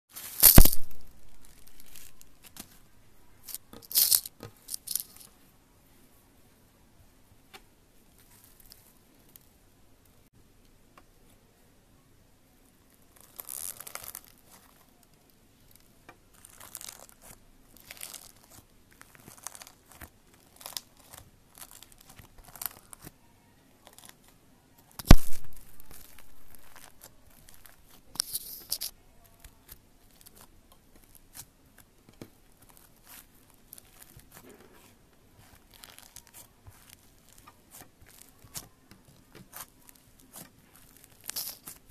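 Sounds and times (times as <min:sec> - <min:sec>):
slime crackling and popping: 0:00.2 - 0:02.8, 0:13.1 - 0:14.9, 0:15.7 - 0:23.1, 0:24.9 - 0:41.9
loud sharp slime pop: 0:00.4 - 0:01.0, 0:25.0 - 0:25.7.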